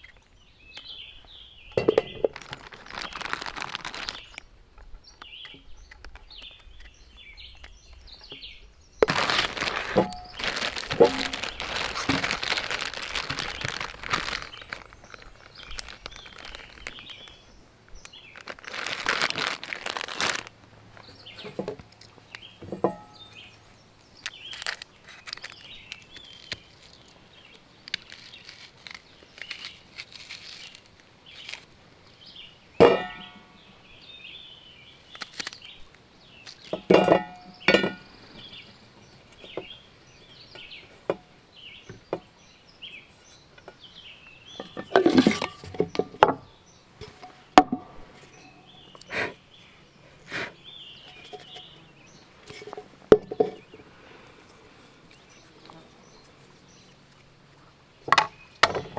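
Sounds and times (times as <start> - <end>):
camp gear clinking and knocking: 1.8 - 4.2, 9.0 - 17.3, 21.3 - 23.5, 32.8 - 33.5, 36.7 - 38.2, 44.5 - 48.7, 52.5 - 53.8
rustling: 1.8 - 8.0, 9.0 - 23.6, 24.2 - 31.7, 35.0 - 38.6, 43.1 - 58.9.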